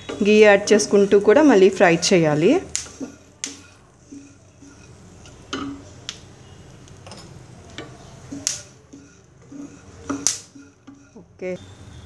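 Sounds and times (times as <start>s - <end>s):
sharp clicks and taps in pan: 0.0s - 0.4s, 2.6s - 11.2s.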